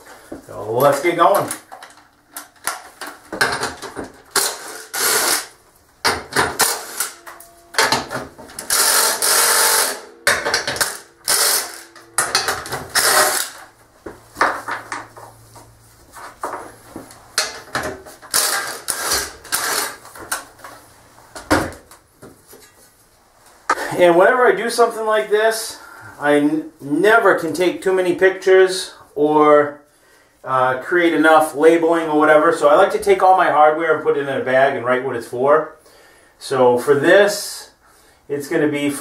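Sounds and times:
power driver bursts: 0:08.6 - 0:12.0, 0:12.9 - 0:13.7.

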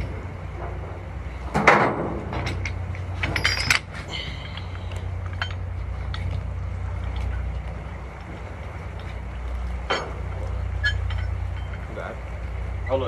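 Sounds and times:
boat engine droning: 0:00.0 - 0:13.0
clatter of clicks and clinks: 0:02.3 - 0:06.4, 0:10.8 - 0:11.9.

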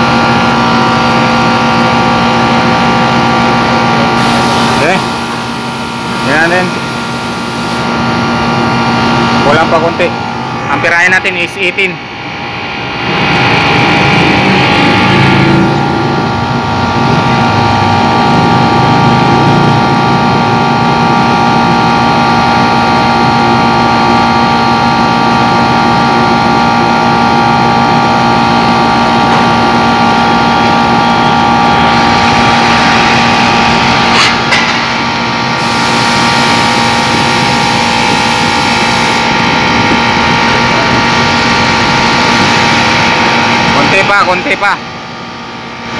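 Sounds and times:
air conditioner humming: 0:00.0 - 0:18.4, 0:24.7 - 0:45.9.

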